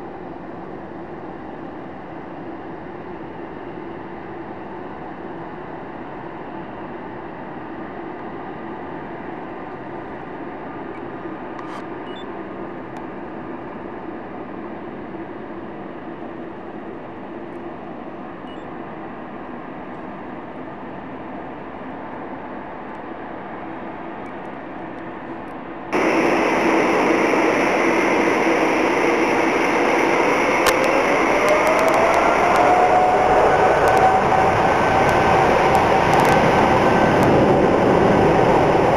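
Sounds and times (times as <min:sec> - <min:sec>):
jet engines running: 0:00.0 - 0:38.9
jet engine whine rising in pitch: 0:25.8 - 0:38.9.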